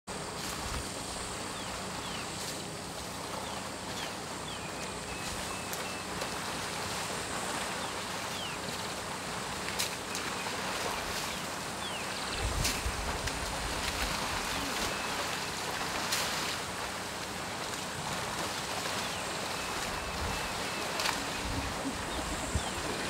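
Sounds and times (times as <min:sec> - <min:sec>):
steady rushing noise: 0:06.2 - 0:23.0.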